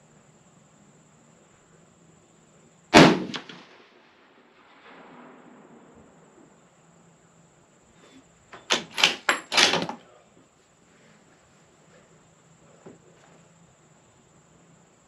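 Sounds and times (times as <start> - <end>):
rifle shot echo: 2.9 - 6.6
rifle bolt metallic clacks: 8.6 - 10.0.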